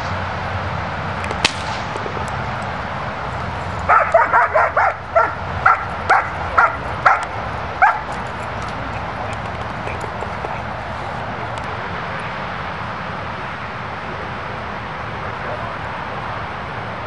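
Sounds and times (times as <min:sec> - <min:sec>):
dog barking: 0:03.4 - 0:11.7.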